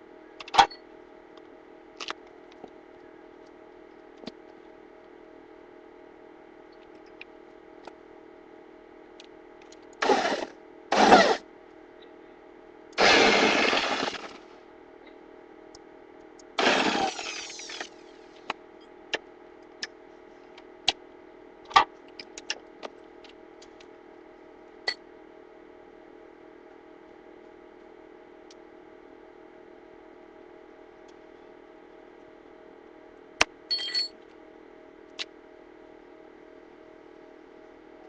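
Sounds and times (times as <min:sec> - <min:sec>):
power tool running: 0:10.0 - 0:11.4, 0:13.0 - 0:14.4, 0:16.6 - 0:17.9.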